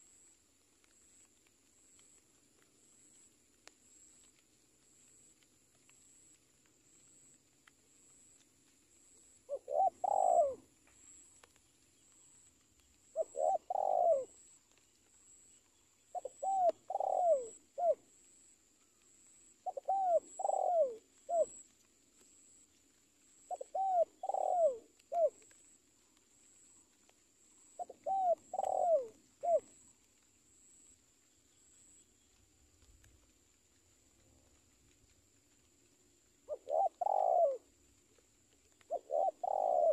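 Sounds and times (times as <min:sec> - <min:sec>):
dove cooing: 0:09.5 - 0:10.7, 0:13.1 - 0:14.4, 0:16.1 - 0:18.0, 0:19.6 - 0:21.6, 0:23.5 - 0:25.5, 0:27.8 - 0:29.8, 0:36.4 - 0:39.9.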